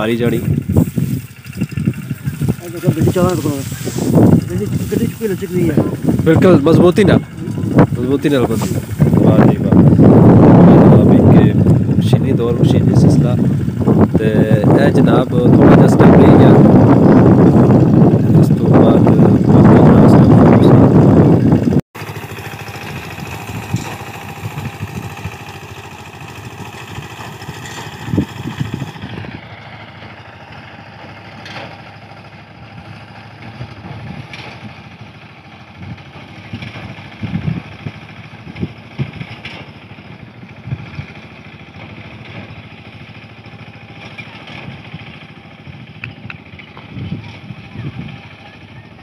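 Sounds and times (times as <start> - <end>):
small engine running: 0.0 - 49.0
knocks and clatter of mechanism: 38.6 - 39.8.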